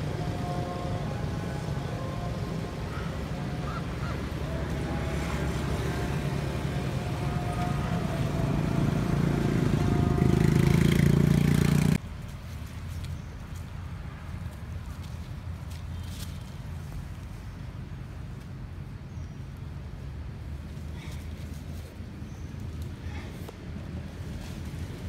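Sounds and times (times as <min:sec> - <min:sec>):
vehicle engine passing: 0:00.0 - 0:12.0.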